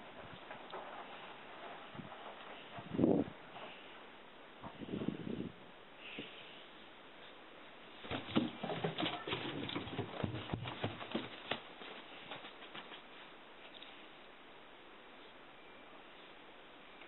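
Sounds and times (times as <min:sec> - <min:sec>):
running feet on hard floor: 0:08.1 - 0:12.9.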